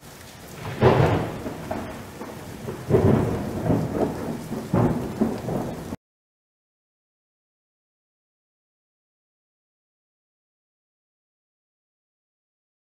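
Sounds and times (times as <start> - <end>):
steady rain: 0.0 - 6.0
rolls of thunder: 0.6 - 6.0.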